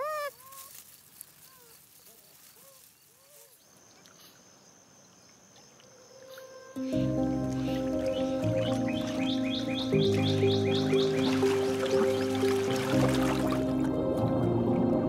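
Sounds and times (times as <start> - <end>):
beaver kits whining: 0.0 - 3.6, 5.7 - 13.8.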